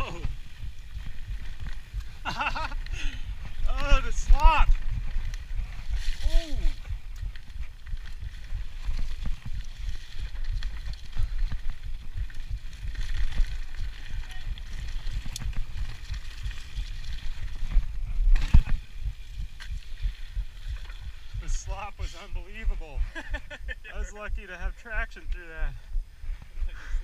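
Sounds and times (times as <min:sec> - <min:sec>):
bike tyres rumbling on dirt: 0:00.0 - 0:23.6
wind on microphone: 0:00.0 - 0:24.4.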